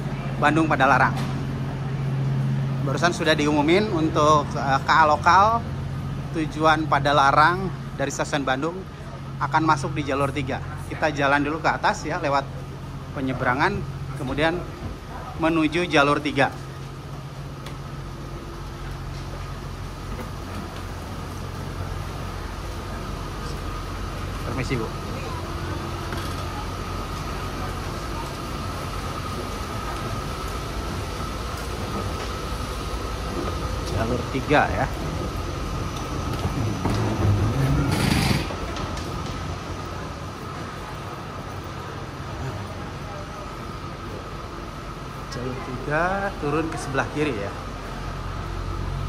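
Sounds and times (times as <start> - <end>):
diesel train engine idling: 0.0 - 49.0
station hum and rumble: 0.0 - 49.0.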